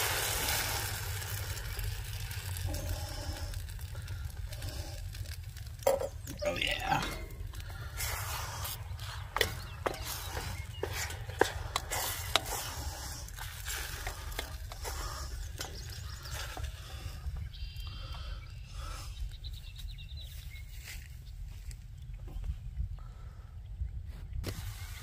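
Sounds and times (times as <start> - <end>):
soft sizzle: 0.0 - 19.0
low steady rumble: 0.0 - 25.0
spatula scraping frying pan: 6.2 - 17.0.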